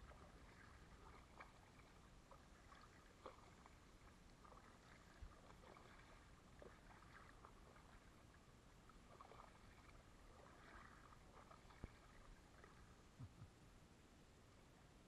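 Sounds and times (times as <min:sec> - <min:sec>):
paddle splashes and drips: 0:00.0 - 0:13.2.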